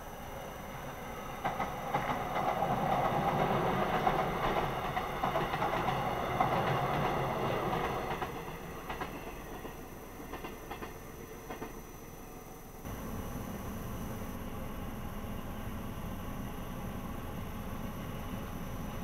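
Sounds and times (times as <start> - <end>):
train wheels clattering over rail joints: 1.2 - 11.9.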